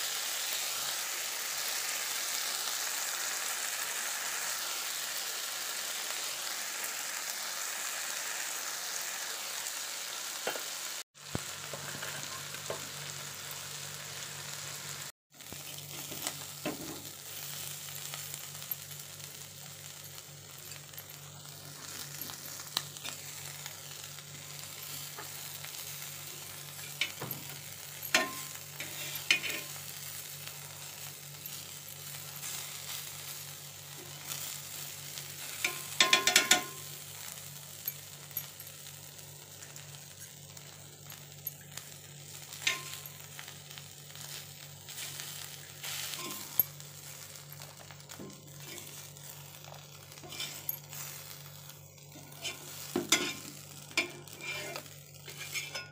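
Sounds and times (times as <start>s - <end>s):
fish sizzling in oil: 0.0s - 55.9s
spatula scraping a pan: 26.5s - 29.9s, 44.2s - 46.7s, 48.6s - 49.4s, 50.1s - 51.4s, 52.1s - 55.9s.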